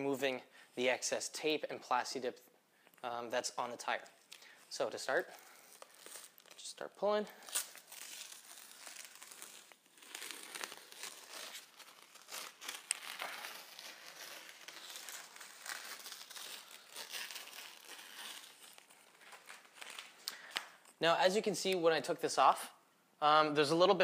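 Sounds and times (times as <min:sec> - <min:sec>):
tape peeling with crackles: 0:05.0 - 0:21.0.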